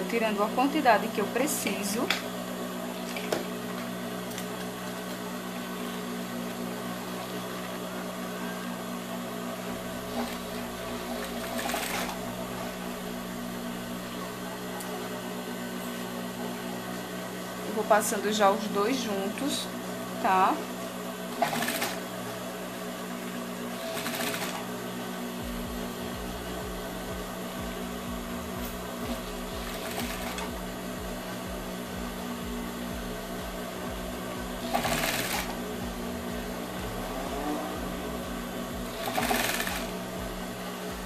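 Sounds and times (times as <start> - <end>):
sewing machine stitching: 10.0 - 12.7, 21.3 - 22.0, 23.7 - 24.7, 29.1 - 30.5, 34.6 - 35.6, 38.8 - 40.0.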